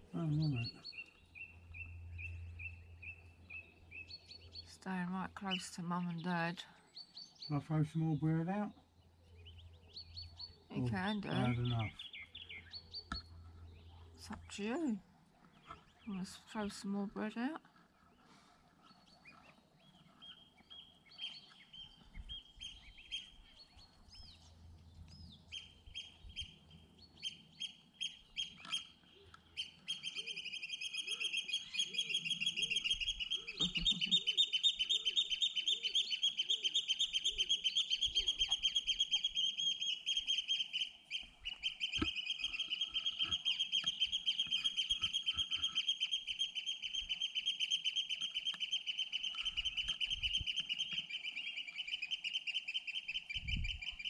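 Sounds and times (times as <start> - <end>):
goslings peeping: 25.5 - 54.0.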